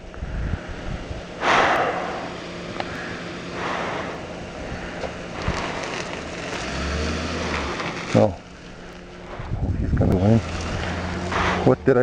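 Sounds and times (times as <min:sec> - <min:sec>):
wind on microphone: 0:00.0 - 0:02.3, 0:09.3 - 0:11.6.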